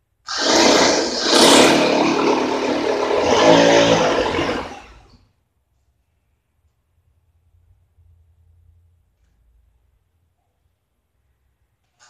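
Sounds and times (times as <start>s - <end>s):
electric drill boring into wall: 0.3s - 5.1s.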